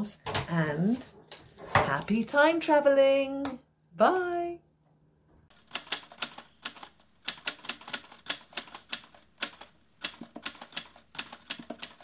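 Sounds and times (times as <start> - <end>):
typewriter keys clacking: 5.7 - 12.0.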